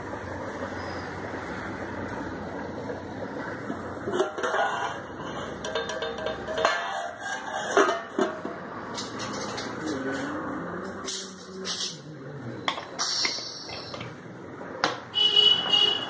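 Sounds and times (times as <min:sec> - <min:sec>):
metal pot lid clanging: 0:04.1 - 0:09.7.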